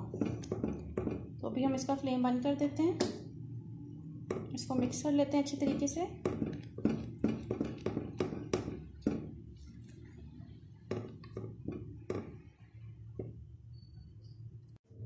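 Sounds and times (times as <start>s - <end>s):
spatula scraping a saucepan: 4.8s - 14.1s.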